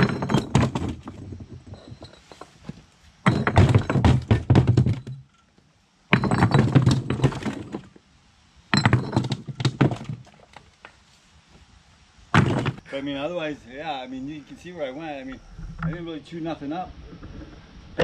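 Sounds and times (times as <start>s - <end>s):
bricks clattering into a cart: 0.0s - 5.4s, 6.1s - 8.0s, 8.7s - 11.0s, 12.3s - 12.8s.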